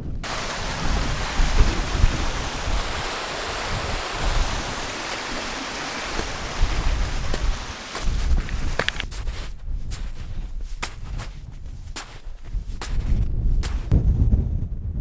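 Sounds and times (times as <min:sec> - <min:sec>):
wind buffeting microphone: 0:00.0 - 0:15.0
stream running over rocks: 0:00.2 - 0:09.1.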